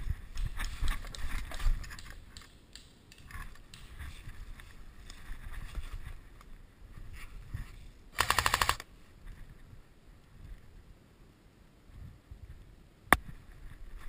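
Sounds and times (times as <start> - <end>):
gear and rifle rattling: 8.2 - 8.8.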